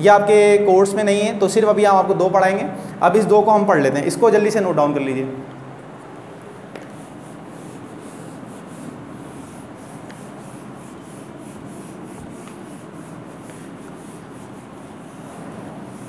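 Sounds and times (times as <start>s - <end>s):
eraser rubbing on whiteboard: 6.5s - 16.0s.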